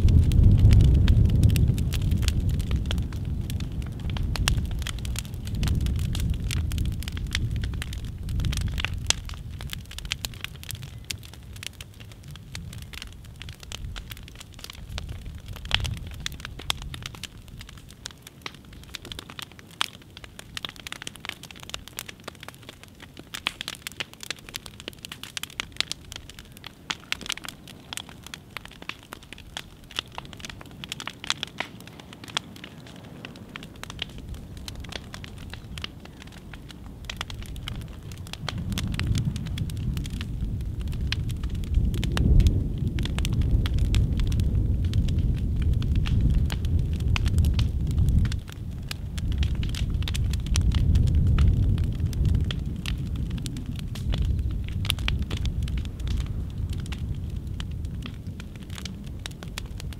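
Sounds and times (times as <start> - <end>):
low rumble: 0.0 - 10.6, 36.3 - 59.7
fire crackling: 0.0 - 59.9
wood popping: 0.0 - 59.9.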